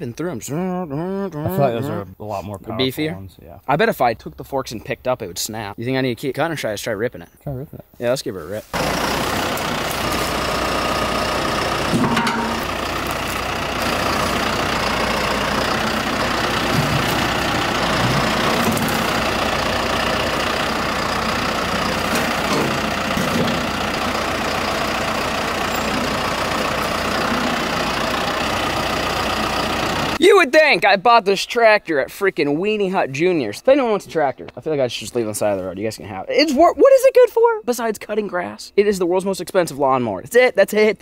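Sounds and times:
tractor engine under load: 8.6s - 30.3s.

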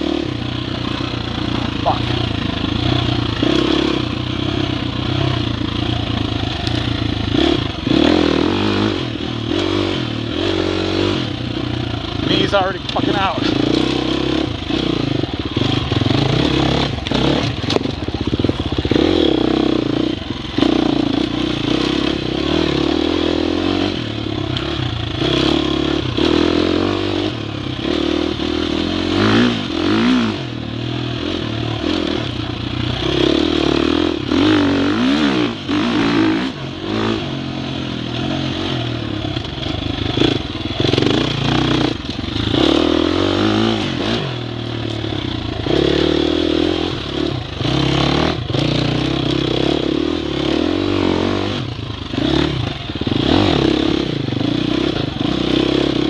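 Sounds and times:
dirt bike engine revving: 0.0s - 56.0s
bike knocking and rattling: 14.6s - 22.2s, 39.2s - 42.8s.

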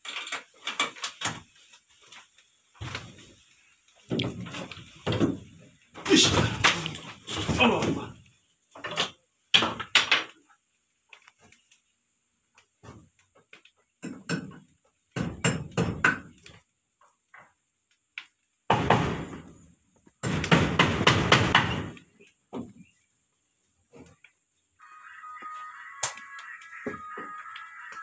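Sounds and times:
hammering on wood and metal roofing: 14.0s - 16.5s, 18.7s - 22.8s.

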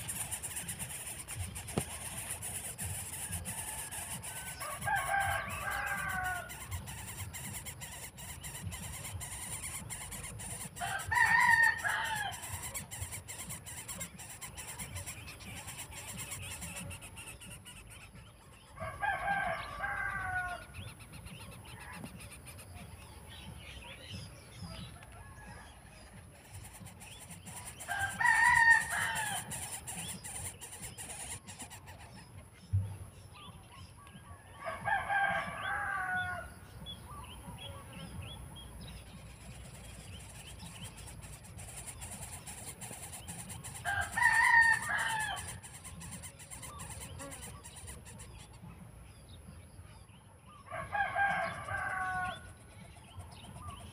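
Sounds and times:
rooster crowing: 3.2s - 7.1s, 10.8s - 12.8s, 18.8s - 20.6s, 27.8s - 29.8s, 34.6s - 36.5s, 43.4s - 45.6s, 50.7s - 52.5s.

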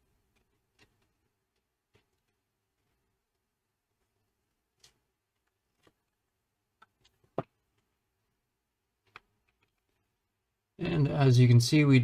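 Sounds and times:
faint clicks and taps: 0.1s - 8.0s, 8.9s - 10.3s.

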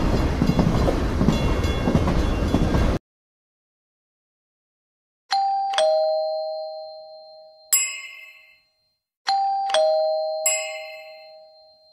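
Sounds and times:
two-note doorbell chime: 5.3s - 11.9s.

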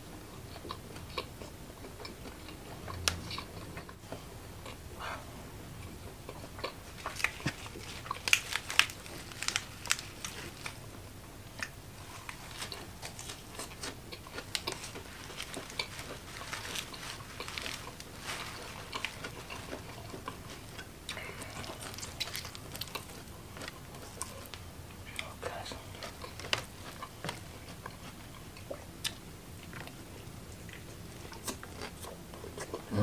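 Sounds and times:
person biting and chewing crunchy food: 6.3s - 10.8s, 11.6s - 24.5s.

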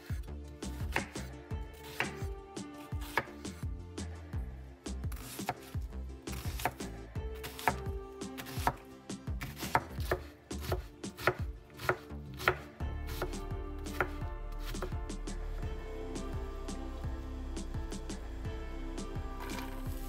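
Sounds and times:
knife chopping vegetables: 0.0s - 3.7s, 5.1s - 15.0s
background music: 0.0s - 20.0s.

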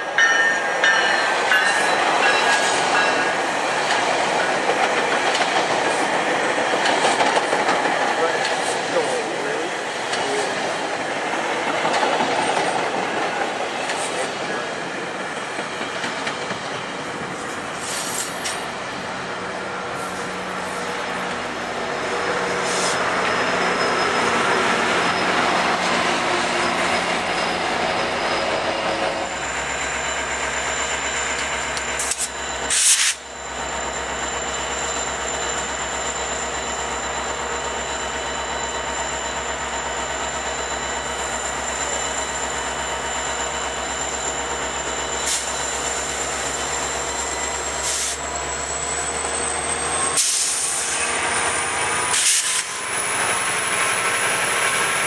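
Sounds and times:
train rolling on rails: 0.0s - 55.0s
diesel locomotive idling: 16.8s - 55.0s.

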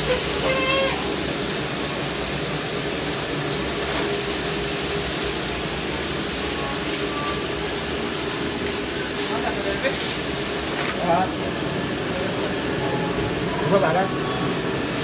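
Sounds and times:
dishwasher water spraying: 0.0s - 11.9s.

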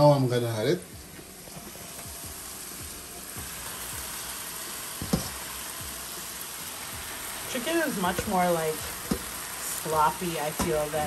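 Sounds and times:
vegetables sizzling in skillet: 0.0s - 11.0s
spoon knocking against pan: 9.1s - 9.3s.

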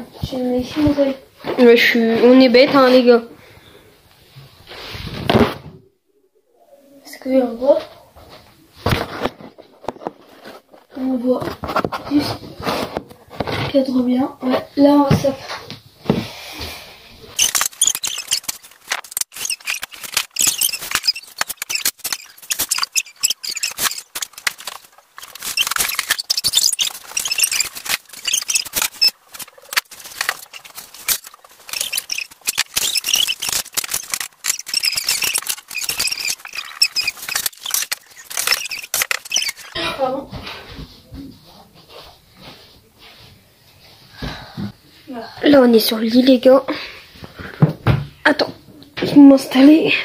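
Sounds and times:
close rustling and crackling: 17.3s - 40.6s.

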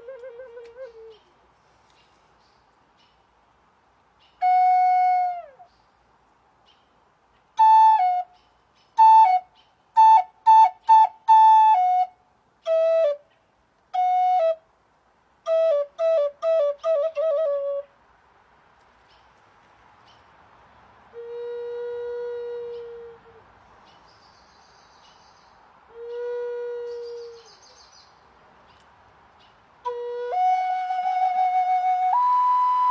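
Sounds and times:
wooden flute melody: 0.0s - 1.3s, 4.4s - 5.8s, 7.6s - 14.7s, 15.4s - 18.0s, 21.1s - 23.5s, 25.9s - 27.8s, 29.8s - 32.9s.

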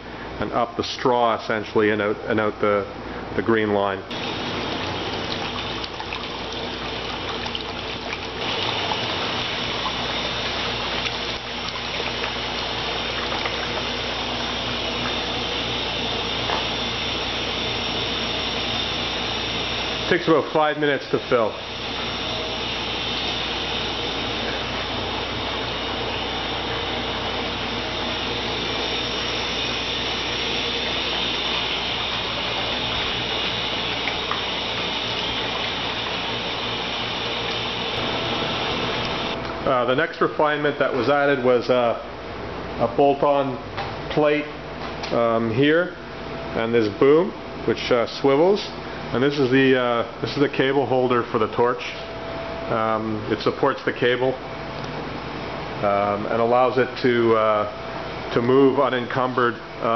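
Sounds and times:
water pouring from hose: 4.1s - 39.4s.

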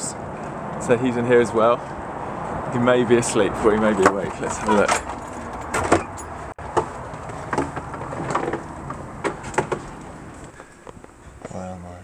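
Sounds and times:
footsteps: 4.3s - 11.6s.

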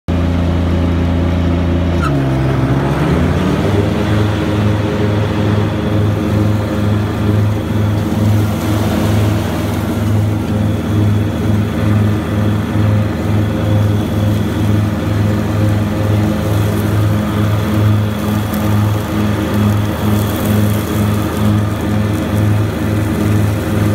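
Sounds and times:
diesel mower engine throbbing: 0.1s - 23.9s
blower rushing noise: 0.2s - 23.9s.

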